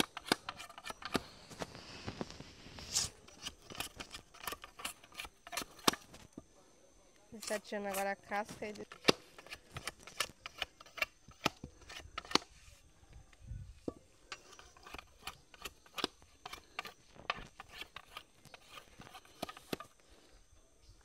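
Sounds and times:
machete chopping wooden pole: 0.0 - 1.2, 8.8 - 12.5.

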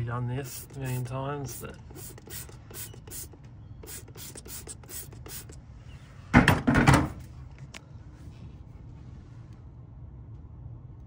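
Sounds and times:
spray bottle hissing squirts: 0.4 - 5.6.

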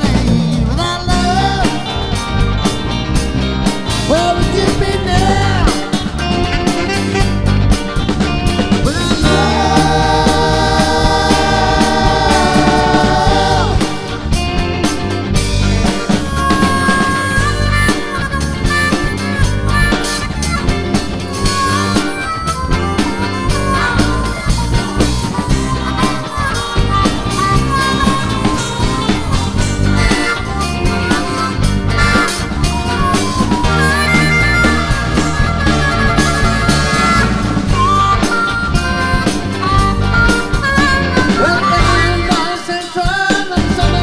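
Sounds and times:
person singing: 0.0 - 2.2, 4.0 - 7.3, 8.8 - 14.7, 21.3 - 44.0
harmonica lead: 0.0 - 44.0
rock band playing: 0.0 - 44.0.

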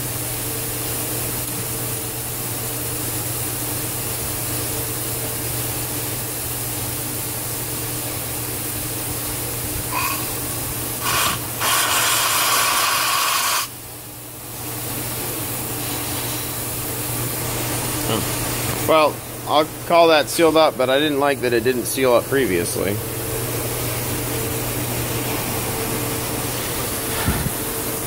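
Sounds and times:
steam hissing: 9.8 - 13.8.

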